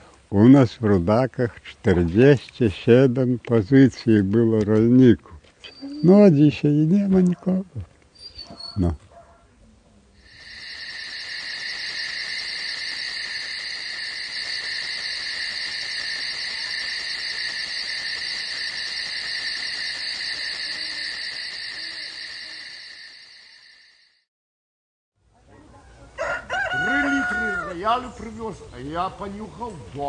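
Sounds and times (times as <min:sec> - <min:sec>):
high-pitched fluttering buzz: 0:10.2 - 0:24.2.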